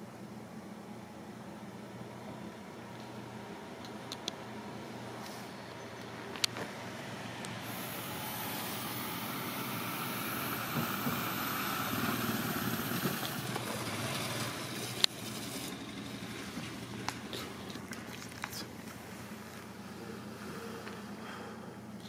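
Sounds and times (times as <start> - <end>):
vehicle passing by: 6.8 - 18.0.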